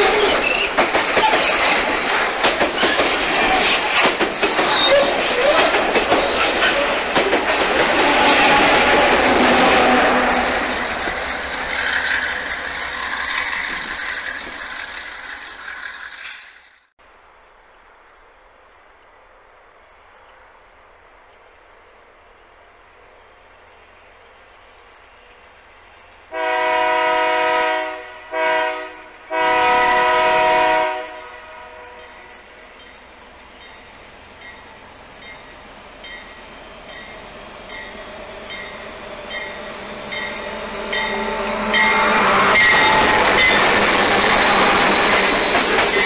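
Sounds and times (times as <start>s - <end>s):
diesel locomotive engine: 0.0s - 16.9s, 17.8s - 46.0s
train wheels on rails: 0.0s - 16.9s, 21.2s - 46.0s
locomotive air horn blasts: 9.3s - 10.8s, 26.3s - 32.3s.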